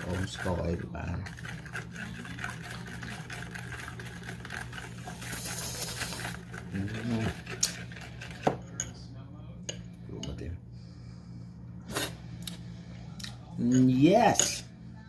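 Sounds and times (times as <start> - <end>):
steady low hum: 0.0 - 15.0
spoon clinking against bowl: 13.6 - 14.7.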